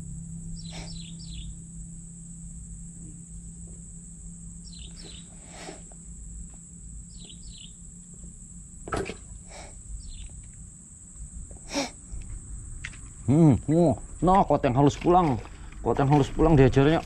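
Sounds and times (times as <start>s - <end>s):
high insect drone: 0.0s - 17.0s
bird chirps: 0.5s - 1.6s, 4.6s - 5.8s, 7.1s - 7.8s, 10.0s - 10.4s.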